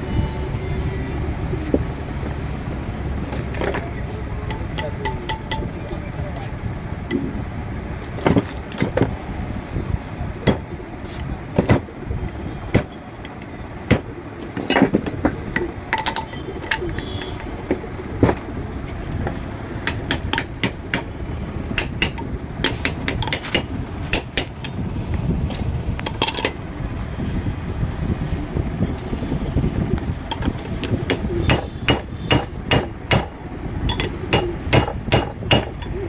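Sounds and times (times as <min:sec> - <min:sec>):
metallic clicks and knocks: 0:03.4 - 0:06.4, 0:12.7 - 0:18.4, 0:19.2 - 0:21.1, 0:21.8 - 0:24.8, 0:25.5 - 0:26.7, 0:30.3 - 0:36.0.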